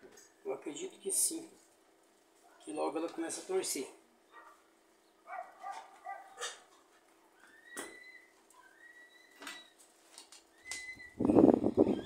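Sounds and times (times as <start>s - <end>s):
animal whining: 5.3s - 9.7s
high whistled animal calls: 7.4s - 9.4s, 10.5s - 12.0s.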